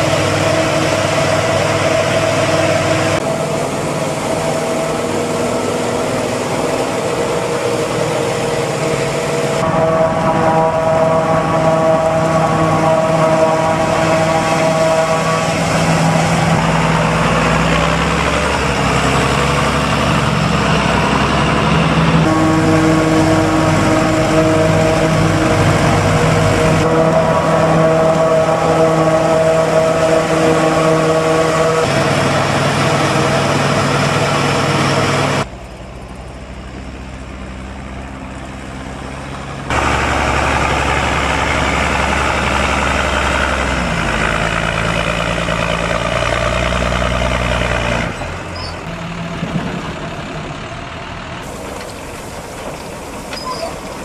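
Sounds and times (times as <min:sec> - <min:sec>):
forage harvester hum: 0:00.0 - 0:54.0
tractor diesel engine: 0:00.0 - 0:54.0
forage wagon unloading: 0:51.4 - 0:54.0.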